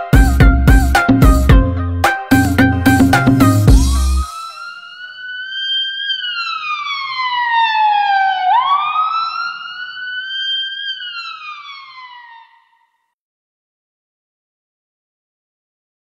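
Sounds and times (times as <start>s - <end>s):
wailing siren: 2.0s - 13.1s.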